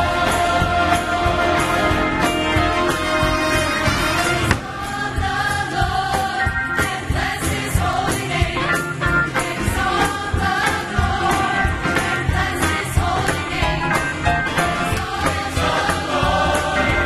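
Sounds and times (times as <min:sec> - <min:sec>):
orchestral accompaniment: 0:00.0 - 0:05.6
church choir singing: 0:00.0 - 0:17.0
steady beat: 0:04.3 - 0:17.0.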